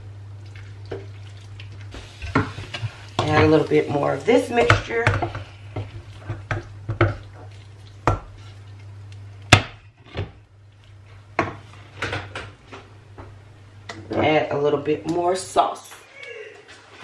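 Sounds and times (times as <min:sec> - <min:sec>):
steady low hum: 0:00.0 - 0:16.2
wooden spoon knocking on pot: 0:04.6 - 0:07.2.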